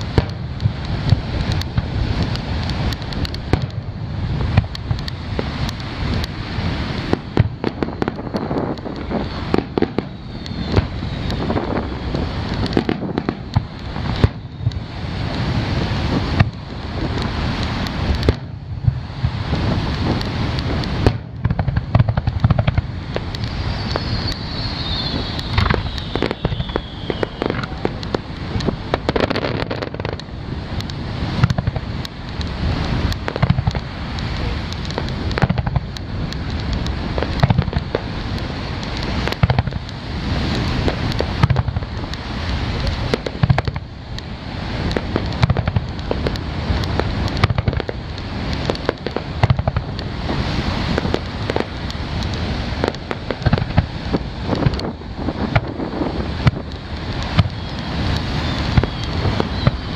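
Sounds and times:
fireworks bursting and crackling: 0.0s - 59.9s
falling firework whistle: 6.8s - 16.5s, 22.0s - 30.0s, 54.5s - 59.9s.

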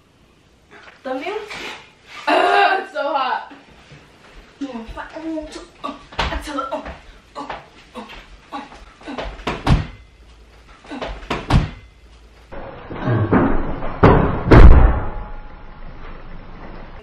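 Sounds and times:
thumps from person dancing: 6.1s - 10.0s, 10.8s - 11.8s.

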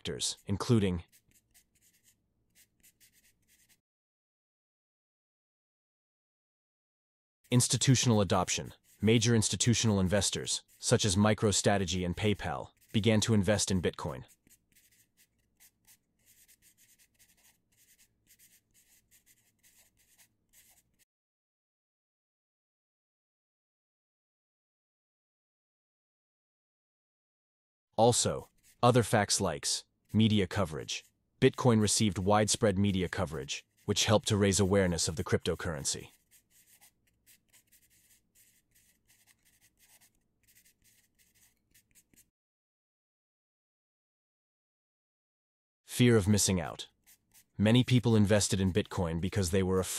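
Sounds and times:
pencil scratching on paper: 0.0s - 3.8s, 7.5s - 21.0s, 28.3s - 29.4s, 30.0s - 42.3s, 46.2s - 49.9s.

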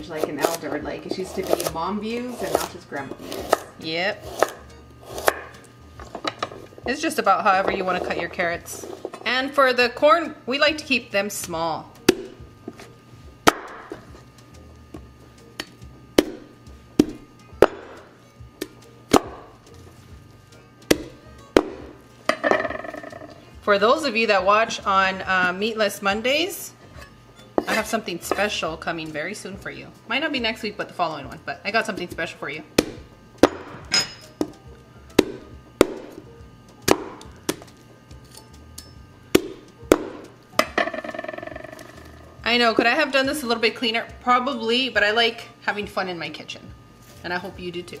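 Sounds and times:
knife chopping on wooden board: 1.3s - 3.6s, 4.3s - 5.5s, 20.9s - 21.9s, 35.2s - 36.2s, 39.4s - 40.3s.

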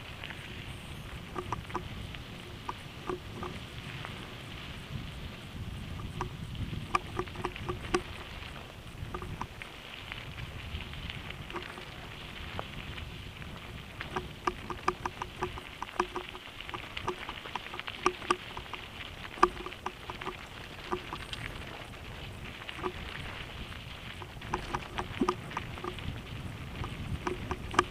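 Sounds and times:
bike clicking and rattling: 0.0s - 4.8s, 5.8s - 27.9s
wind rumble on microphone: 0.0s - 27.9s
tyres crunching over gravel: 7.0s - 27.9s.

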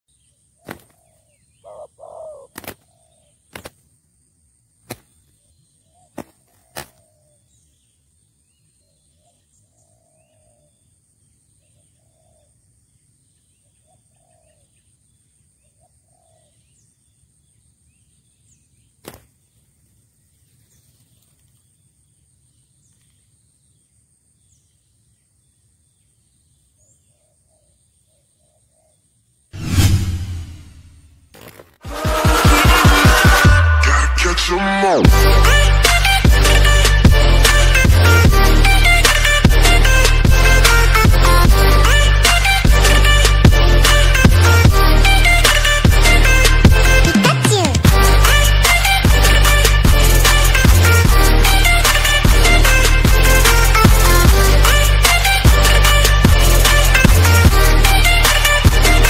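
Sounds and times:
dove wing claps: 0.6s - 1.0s, 2.5s - 2.9s, 3.5s - 3.8s, 4.9s - 5.1s, 6.1s - 7.0s
dove soft low coos: 1.7s - 2.5s.

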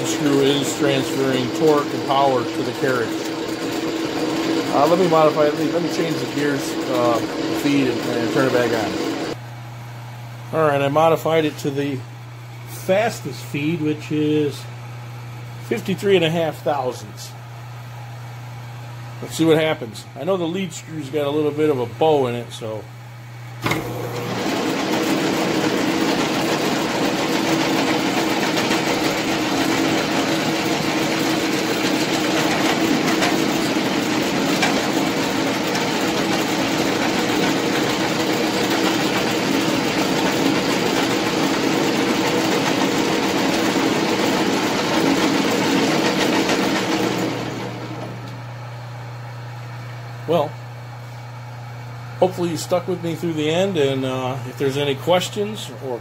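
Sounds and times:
metal lathe whirring: 0.0s - 9.4s, 23.6s - 48.4s.

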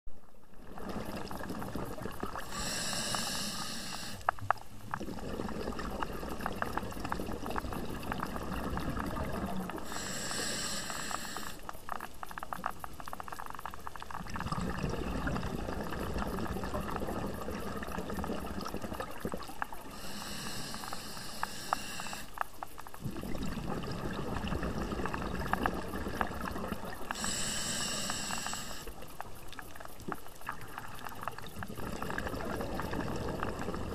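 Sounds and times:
bubbling exhalation underwater: 0.5s - 3.2s, 4.8s - 10.2s, 14.1s - 20.6s, 23.0s - 29.4s, 30.1s - 33.9s
regulator hissing inhalations: 2.4s - 4.4s, 9.7s - 11.8s, 19.7s - 22.5s, 27.0s - 29.1s.

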